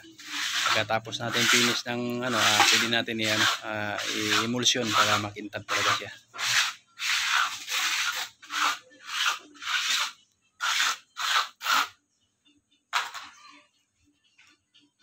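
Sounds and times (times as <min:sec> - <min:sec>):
sandpaper rasping on wood: 0:00.2 - 0:11.9.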